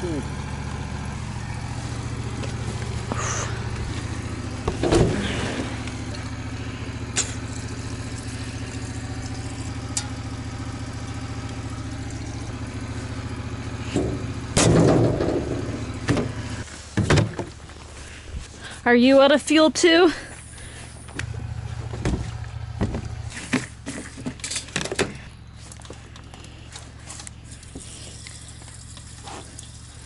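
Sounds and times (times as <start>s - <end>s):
engine idling: 0.0s - 30.0s
handling clunks: 2.2s - 6.5s, 21.1s - 27.4s.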